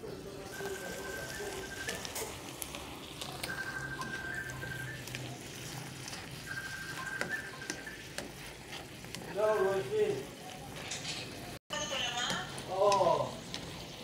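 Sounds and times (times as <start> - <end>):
vegetables sizzling in a pan: 0.0 - 14.0.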